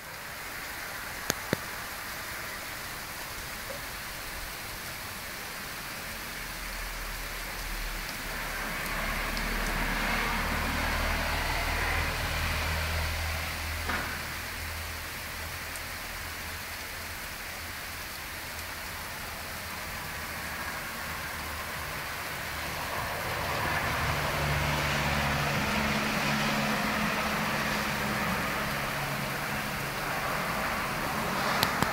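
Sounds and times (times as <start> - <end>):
steady hiss: 0.0 - 10.2
vehicle engine and tyres on snow: 0.0 - 31.9.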